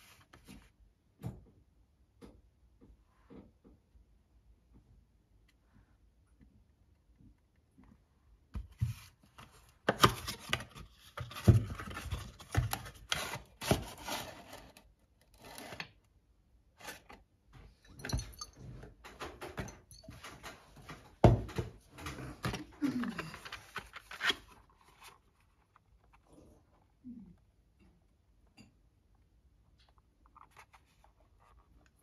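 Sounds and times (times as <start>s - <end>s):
cardboard box rustling and scraping: 10.1s - 15.8s.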